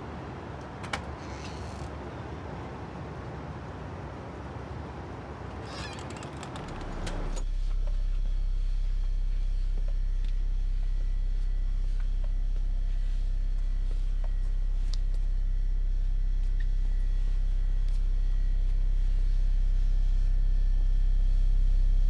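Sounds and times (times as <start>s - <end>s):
steady low drone: 6.3s - 22.0s.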